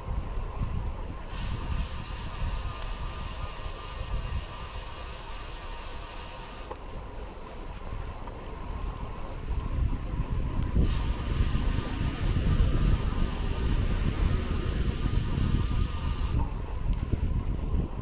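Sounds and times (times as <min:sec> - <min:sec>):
wind buffeting microphone: 0:00.0 - 0:18.0
steady hiss: 0:01.2 - 0:09.3, 0:10.6 - 0:16.7.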